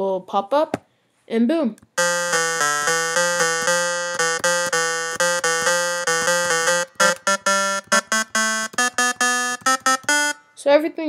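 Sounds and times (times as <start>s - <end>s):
synthesizer repeated notes: 2.0s - 10.5s.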